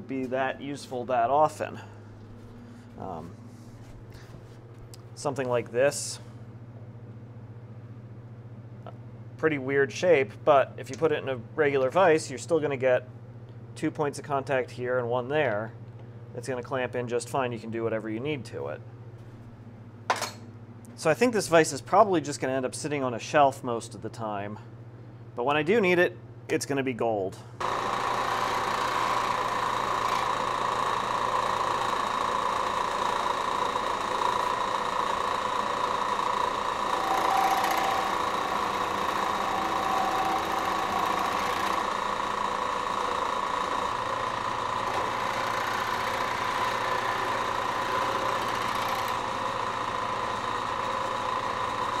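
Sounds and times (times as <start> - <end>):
milling machine cutting steel: 27.6 - 52.0.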